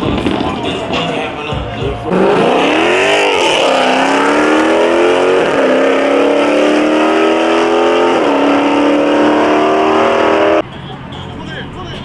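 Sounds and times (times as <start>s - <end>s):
car engine accelerating hard: 2.0s - 10.6s.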